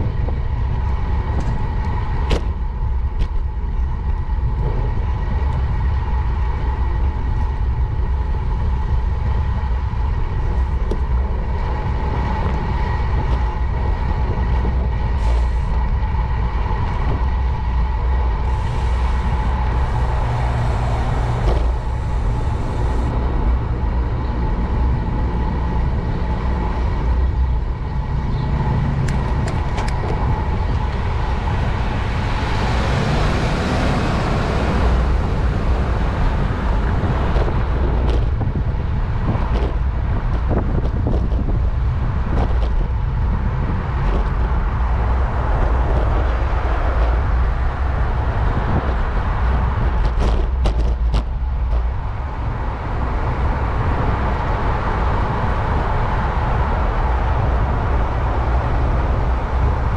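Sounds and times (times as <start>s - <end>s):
road noise rumble: 0.0s - 59.9s
vehicle passing close: 18.4s - 25.4s, 26.4s - 41.1s.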